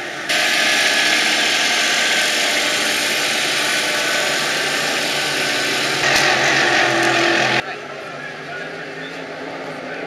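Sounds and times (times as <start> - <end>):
racing boat engine running loudly: 0.3 - 7.6.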